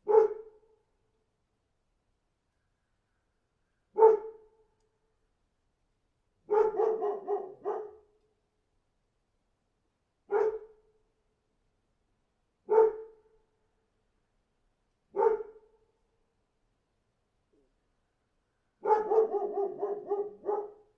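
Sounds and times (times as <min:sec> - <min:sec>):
dog barking: 0:00.0 - 0:00.6, 0:04.0 - 0:04.5, 0:06.5 - 0:08.1, 0:10.3 - 0:10.8, 0:12.7 - 0:13.2, 0:15.1 - 0:15.7, 0:18.8 - 0:20.9.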